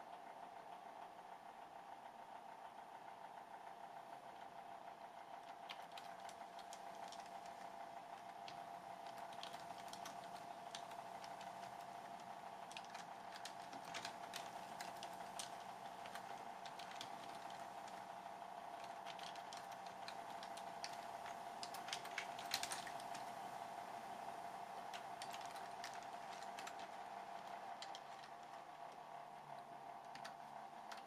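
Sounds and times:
computer keyboard typing: 0:05.4 - 0:18.1, 0:18.7 - 0:23.4, 0:24.8 - 0:29.0, 0:30.0 - 0:31.0.

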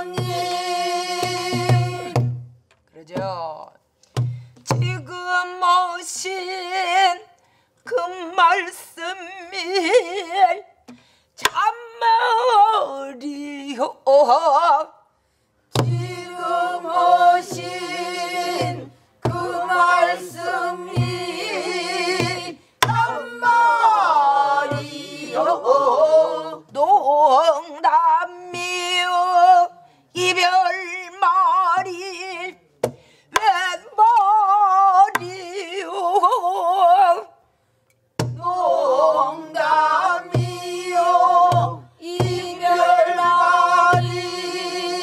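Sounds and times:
woman singing with vibrato: 0:00.0 - 0:02.2, 0:04.8 - 0:10.7, 0:11.4 - 0:15.0, 0:15.9 - 0:32.6, 0:33.4 - 0:37.4, 0:38.4 - 0:45.0
barrel drum thumps: 0:00.1 - 0:03.4, 0:04.2 - 0:05.0, 0:15.7 - 0:16.4, 0:17.4 - 0:23.3, 0:38.2 - 0:38.5, 0:40.3 - 0:44.4.

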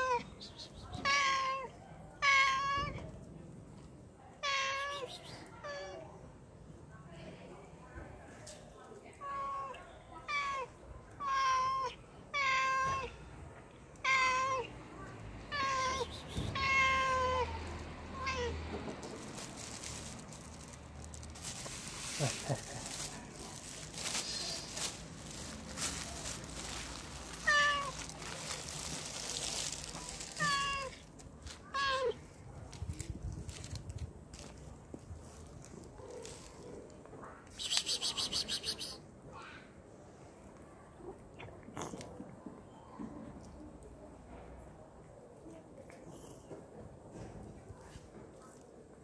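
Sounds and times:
cat meowing: 0:15.5 - 0:18.8, 0:27.3 - 0:28.2, 0:30.3 - 0:31.0
plastic bag rustling: 0:19.0 - 0:31.6.

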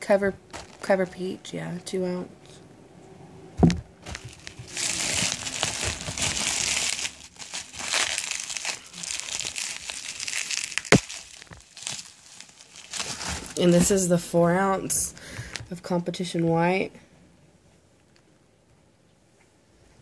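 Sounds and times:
bubble wrap crinkling: 0:00.4 - 0:01.1, 0:03.6 - 0:15.7
knock: 0:03.6 - 0:03.8.

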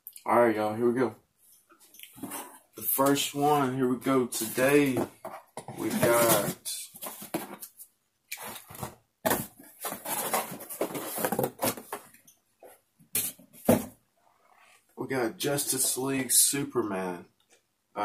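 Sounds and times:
cardboard box rustling and scraping: 0:04.4 - 0:07.6, 0:08.4 - 0:12.0.

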